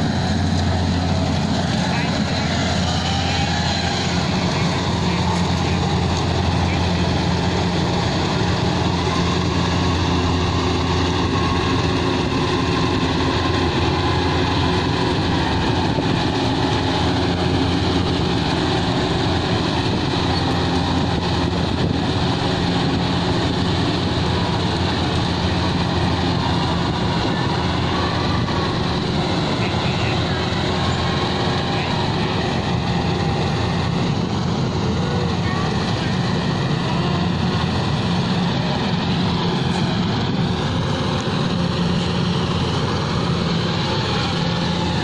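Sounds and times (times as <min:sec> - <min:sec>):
combine harvester engine running: 0:00.0 - 0:45.0.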